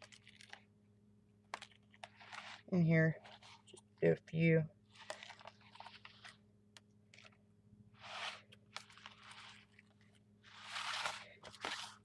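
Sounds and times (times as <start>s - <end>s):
card scraping through shaving cream: 2.0s - 2.7s, 8.0s - 12.0s.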